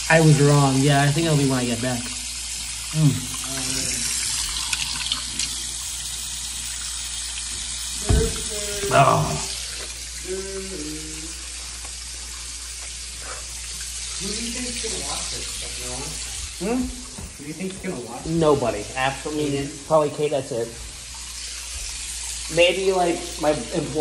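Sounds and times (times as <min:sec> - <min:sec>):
faucet running into plastic jug: 0:00.0 - 0:24.0
thump: 0:08.0 - 0:08.8.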